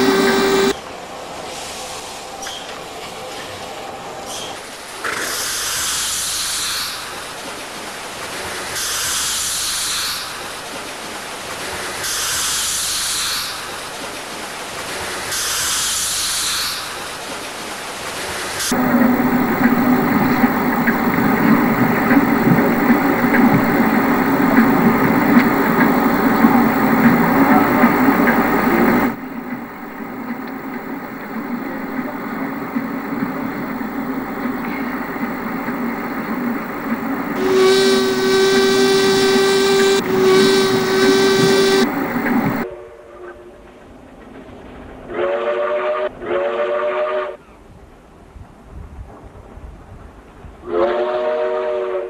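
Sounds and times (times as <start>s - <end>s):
paddle wheel churning: 0.0s - 0.8s, 18.7s - 42.6s
steam engine hissing: 0.0s - 0.8s, 18.7s - 42.7s.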